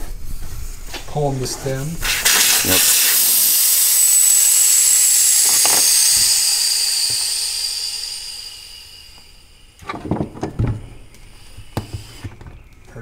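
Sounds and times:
air hissing out of a tire: 2.0s - 9.9s, 10.8s - 12.4s.

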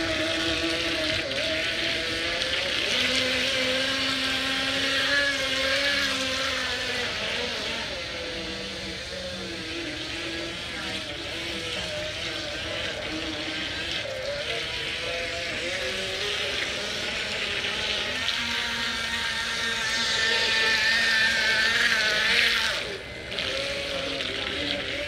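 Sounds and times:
small motor whining: 0.0s - 25.0s.

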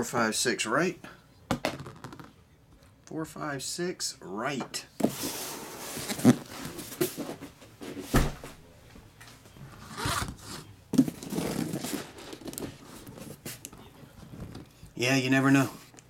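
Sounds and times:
cardboard boxes scraping on table: 5.0s - 7.4s.

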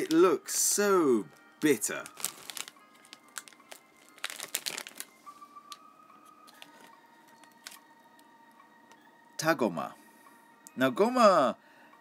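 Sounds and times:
plastic snack bag crinkling: 1.6s - 5.2s, 6.4s - 7.8s.

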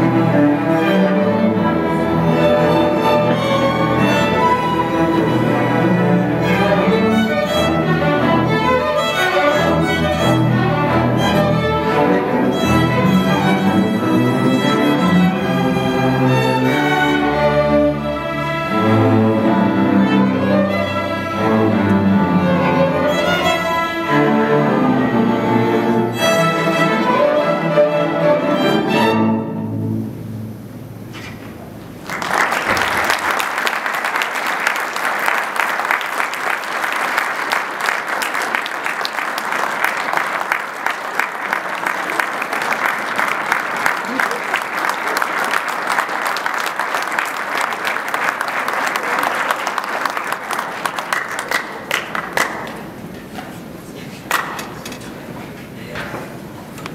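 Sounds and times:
string orchestra playing: 0.0s - 31.0s
audience applause: 32.0s - 53.0s.

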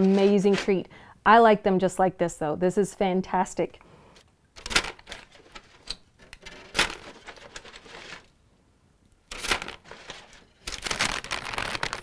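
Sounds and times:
aluminium foil crinkling: 4.6s - 8.3s, 9.3s - 12.0s
paper bag rustling: 4.8s - 8.3s, 9.3s - 12.0s.

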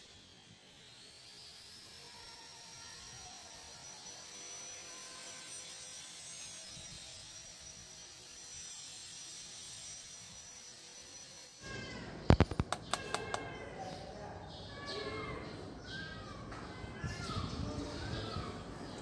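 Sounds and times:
thin steady tones: 0.0s - 11.8s
hiss: 6.5s - 11.1s.

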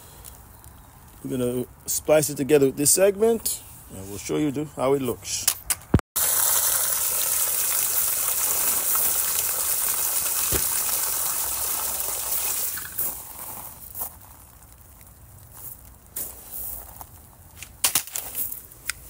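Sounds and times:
water spraying and gushing: 6.2s - 13.8s.

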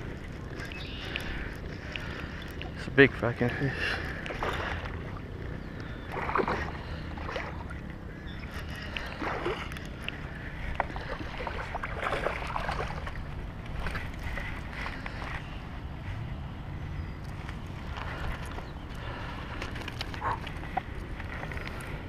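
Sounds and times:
fish splashing: 6.0s - 7.8s, 8.4s - 15.5s.

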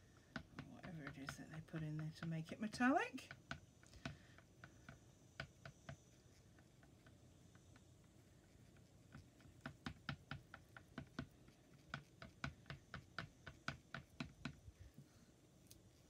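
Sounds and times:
stick clicking in plastic pot: 0.1s - 7.8s.

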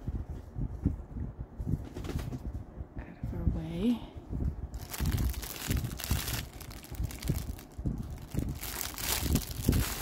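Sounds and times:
soft low bumps: 0.0s - 10.0s
plastic wrapping crinkling: 4.7s - 10.0s.

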